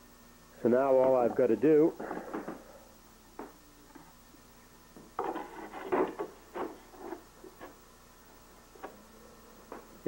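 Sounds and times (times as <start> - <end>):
wooden knocks and rubbing: 5.0 - 7.8.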